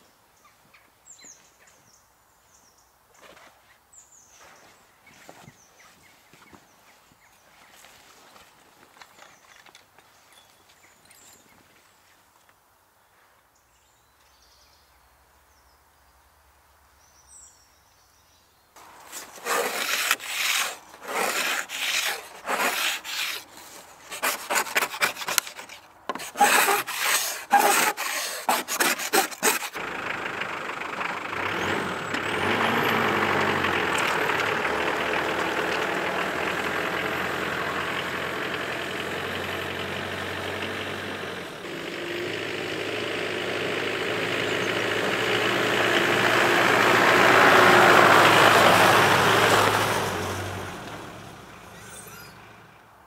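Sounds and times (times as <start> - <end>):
rough rasping rubbing strokes: 18.8 - 29.8, 51.8 - 52.4
pickup truck engine driving: 29.6 - 53.0.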